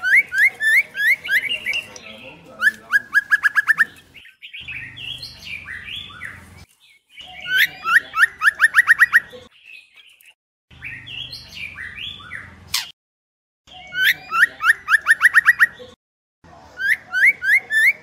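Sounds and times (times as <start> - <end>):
bird whistled calls: 2.6 - 6.4.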